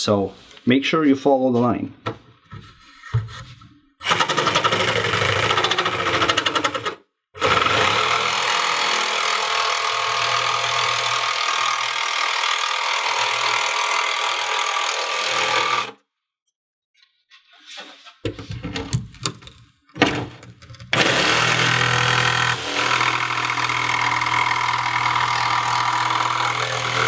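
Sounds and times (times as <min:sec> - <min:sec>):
jigsaw cutting: 0:04.0 - 0:16.0, 0:20.9 - 0:27.0.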